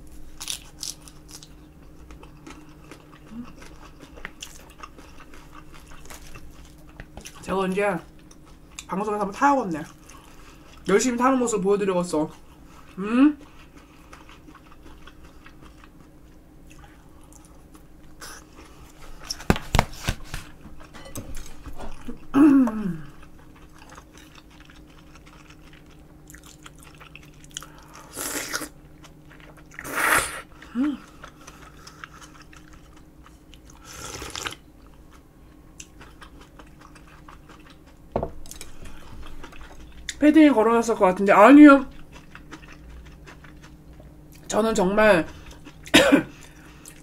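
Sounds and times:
chewing and crunching food: 0:00.0 - 0:11.4, 0:12.2 - 0:40.3, 0:40.9 - 0:44.6, 0:45.2 - 0:47.0
person humming mm: 0:13.0 - 0:13.4, 0:22.3 - 0:23.2, 0:29.9 - 0:31.2
slurping noodles: 0:33.8 - 0:34.6.

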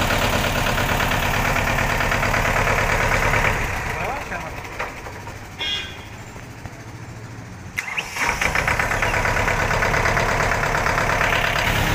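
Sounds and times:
diesel tractor engine running: 0:00.0 - 0:11.9
starter motor cranking: 0:07.8 - 0:11.9.

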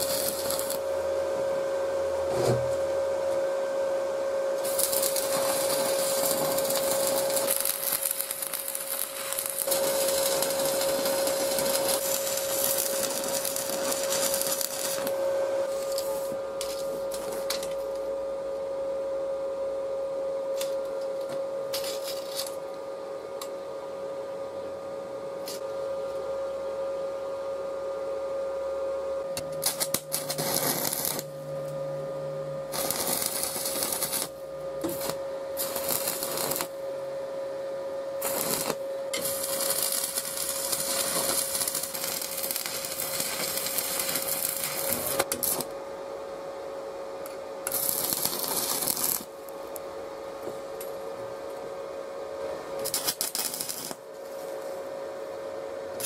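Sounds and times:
welding arc crackling: 0:00.0 - 0:00.9, 0:04.6 - 0:17.7, 0:21.8 - 0:22.6, 0:29.5 - 0:31.4, 0:32.7 - 0:36.8, 0:38.2 - 0:45.7, 0:47.7 - 0:49.3, 0:52.8 - 0:54.1.

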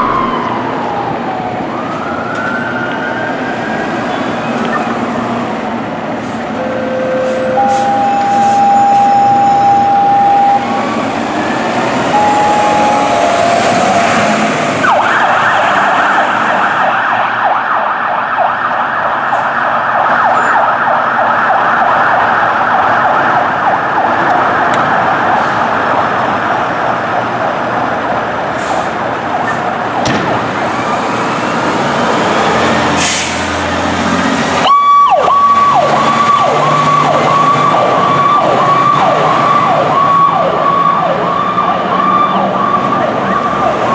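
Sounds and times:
steady high siren tone: 0:00.0 - 0:05.0, 0:06.6 - 0:25.7, 0:34.6 - 0:43.9
electronic siren yelping: 0:06.6 - 0:10.9, 0:12.0 - 0:17.7, 0:34.6 - 0:43.9.

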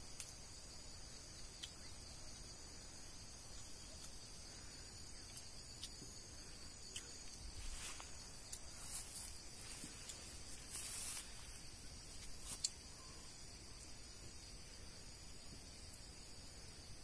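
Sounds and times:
insects chirring: 0:00.0 - 0:17.0
light ticks: 0:00.2 - 0:00.4.

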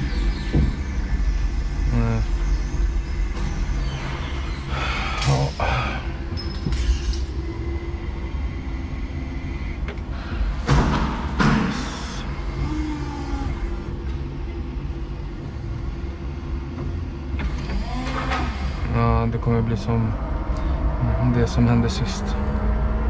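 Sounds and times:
forklift machine rumble and hum: 0:00.0 - 0:23.0.

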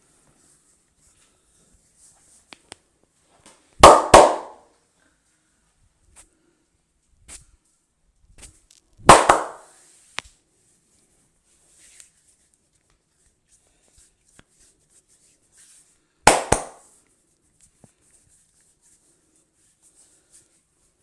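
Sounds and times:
open-hand slaps on head: 0:03.8 - 0:04.6, 0:09.1 - 0:09.6, 0:16.3 - 0:16.8.

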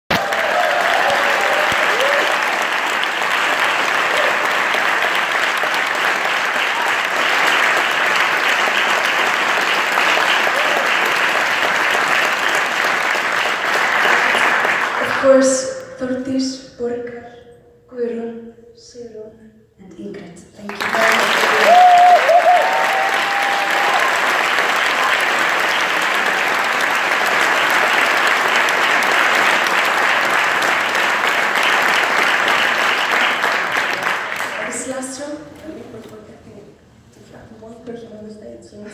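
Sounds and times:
audience applauding: 0:00.0 - 0:15.4, 0:20.7 - 0:34.9.

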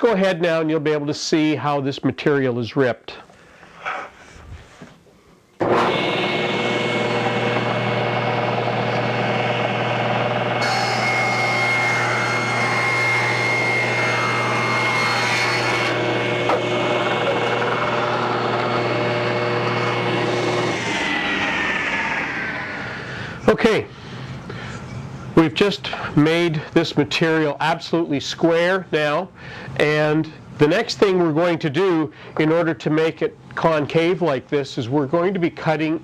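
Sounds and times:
saw blade cutting wood: 0:05.6 - 0:23.0
table saw running: 0:05.6 - 0:23.4.

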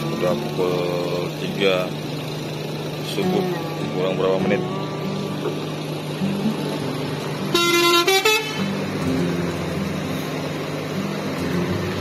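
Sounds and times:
bus diesel engine running: 0:00.0 - 0:12.0
bus horn toots: 0:07.4 - 0:09.1.

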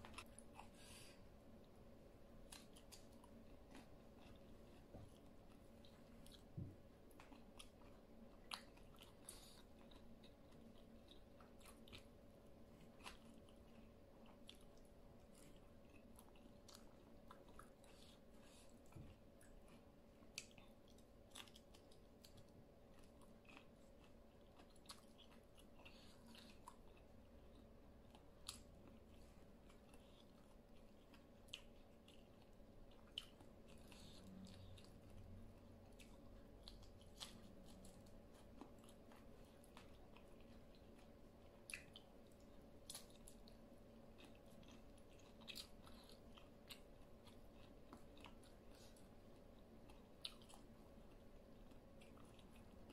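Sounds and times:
faint chewing: 0:00.0 - 0:52.9.

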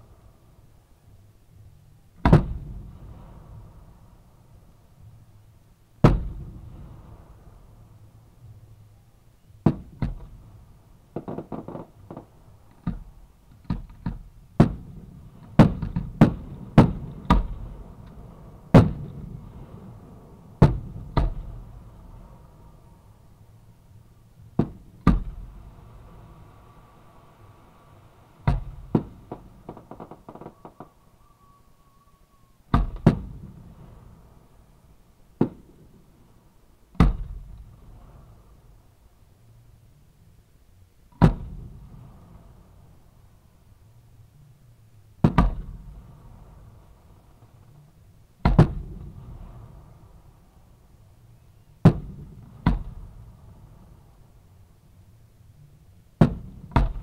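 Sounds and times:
fireworks bursting with echo: 0:02.2 - 0:04.8, 0:06.0 - 0:08.1, 0:09.6 - 0:23.4, 0:28.4 - 0:31.3, 0:32.7 - 0:34.7, 0:35.4 - 0:38.8, 0:41.1 - 0:42.8, 0:45.2 - 0:47.6, 0:48.4 - 0:50.4, 0:51.8 - 0:54.2, 0:56.2 - 0:57.0.

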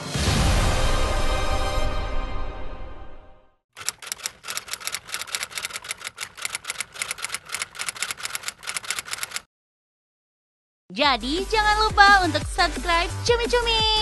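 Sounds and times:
typewriter keystrokes: 0:03.8 - 0:09.5.

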